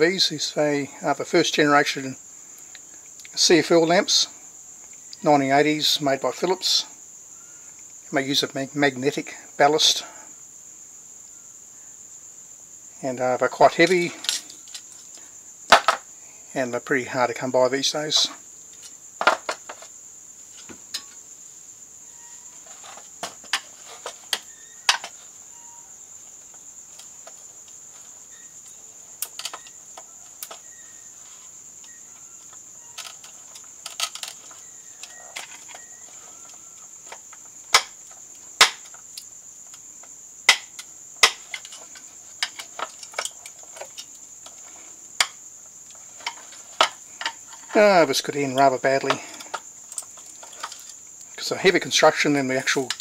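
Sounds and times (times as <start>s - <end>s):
steady high-pitched hiss: 0.0s - 53.0s
screwdriver clicking and scraping glass: 32.4s - 37.9s.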